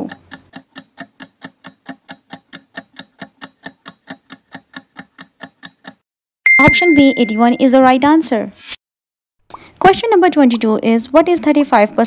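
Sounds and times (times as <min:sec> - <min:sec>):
countdown timer clock ticking: 0:00.0 - 0:07.8.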